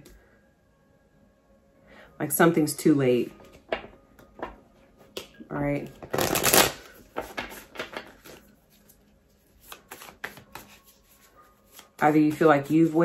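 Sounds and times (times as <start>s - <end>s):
cards being shuffled: 6.0s - 13.0s.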